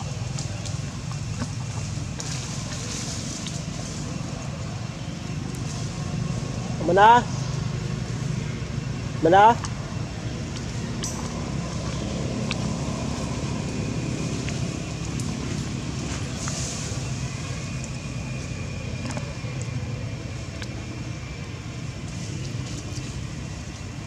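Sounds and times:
low outdoor background rumble: 0.0 - 24.0.

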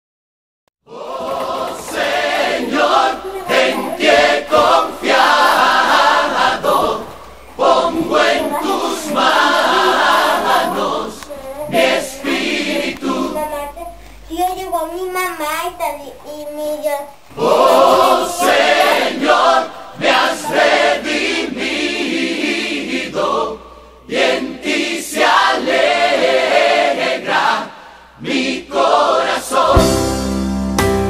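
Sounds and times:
choir singing unaccompanied: 0.9 - 15.2, 17.2 - 30.4
instrumental music with low notes: 29.7 - 31.0.

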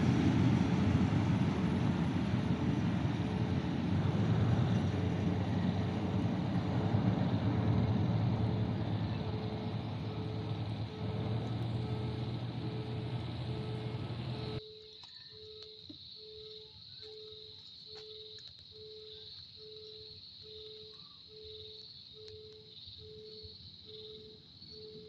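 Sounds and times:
vehicles on a wet road: 0.0 - 14.6
faint pulsing tone: 0.0 - 17.5
insects chirring: 0.0 - 25.0.

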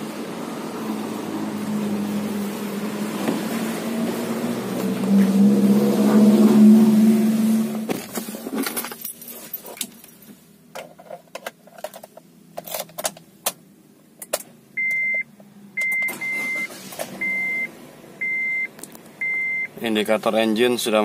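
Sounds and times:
dashboard warning chime beeps: 14.8 - 19.8.

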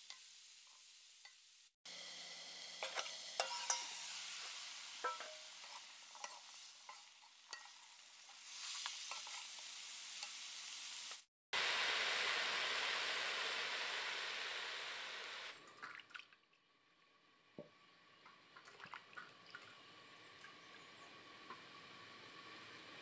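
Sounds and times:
water splashing and dripping: 15.6 - 16.6, 18.2 - 20.6.

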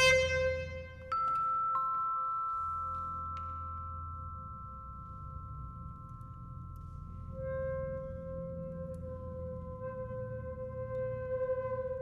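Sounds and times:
soft sustained chamber music tones: 0.0 - 12.0.

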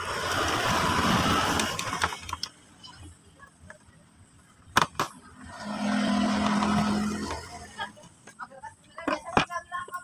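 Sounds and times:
vehicle rushing noise: 5.4 - 8.0.

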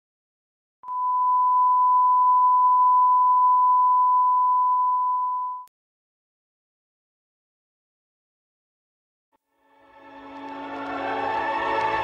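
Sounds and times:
steady test tone beep: 0.8 - 5.7.

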